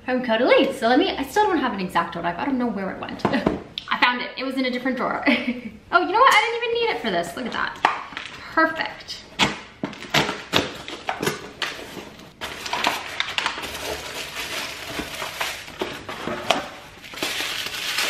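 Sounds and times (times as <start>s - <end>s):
paper packing crinkling: 9.9s - 18.0s.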